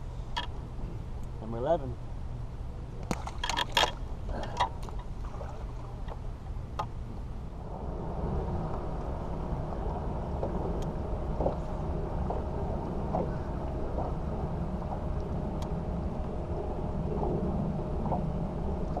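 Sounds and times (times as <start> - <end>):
trolling motor rumble: 0.0 - 19.0
knocks and clicks on boat deck: 10.4 - 14.2.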